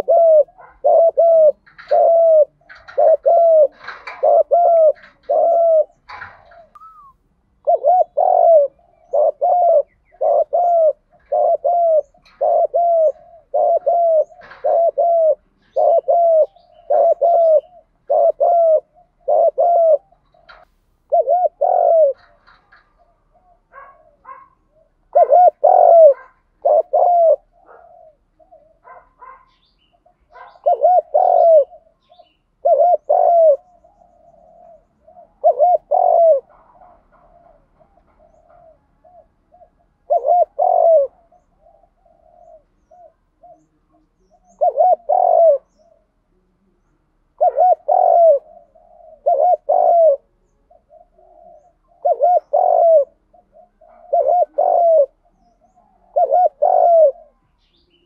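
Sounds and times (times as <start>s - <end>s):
dove cooing: 0.0s - 58.0s.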